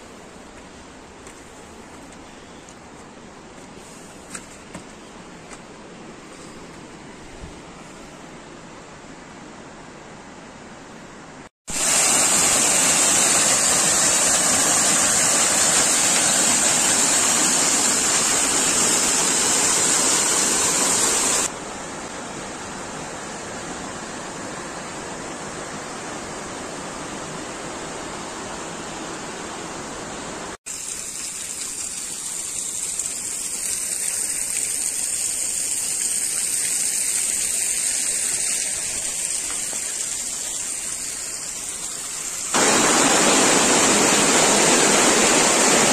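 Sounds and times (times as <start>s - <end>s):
waterfalls rushing and splashing: 11.7s - 45.9s.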